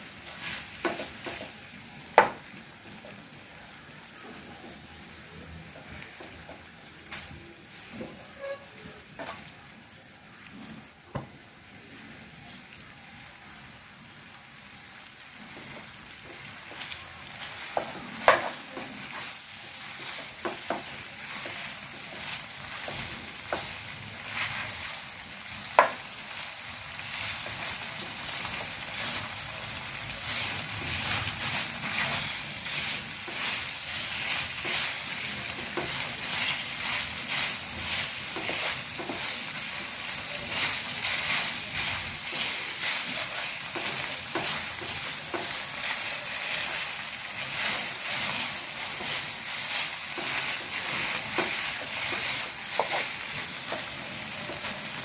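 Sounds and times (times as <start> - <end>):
food sizzling in pan: 0.0 - 55.0
wooden spatula scraping pan: 5.8 - 9.5, 27.0 - 55.0.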